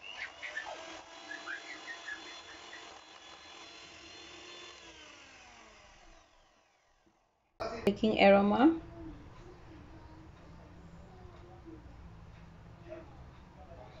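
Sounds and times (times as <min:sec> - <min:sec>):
electric hand mixer whine: 0:00.0 - 0:07.2.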